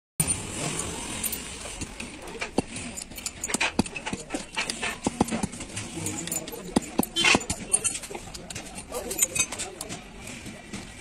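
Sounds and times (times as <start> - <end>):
metal tools tapping metal housing: 1.2 - 10.0.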